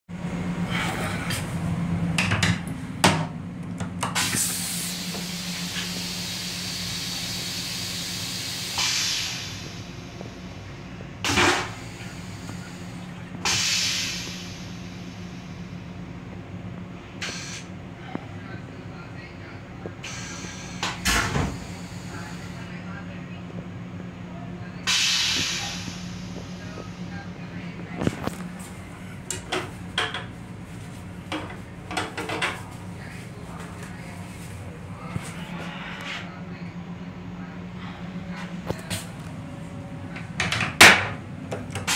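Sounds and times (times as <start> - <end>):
steady low hum: 0.1 - 41.9
vacuum toilet hissing: 4.2 - 10.6, 11.2 - 15.8, 17.2 - 17.7, 20.0 - 22.7, 24.9 - 26.6.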